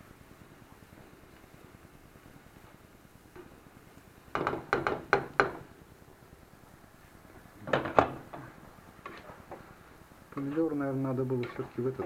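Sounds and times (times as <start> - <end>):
spatula scraping frying pan: 11.3 - 12.0.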